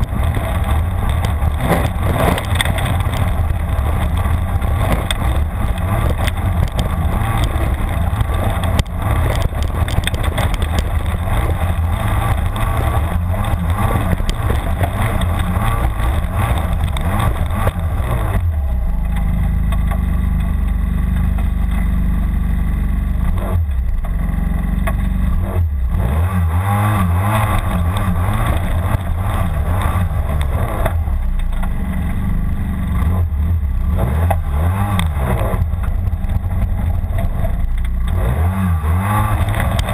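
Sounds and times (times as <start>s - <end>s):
snowmobile engine under throttle: 0.0s - 39.9s
track churning dirt: 0.0s - 39.9s.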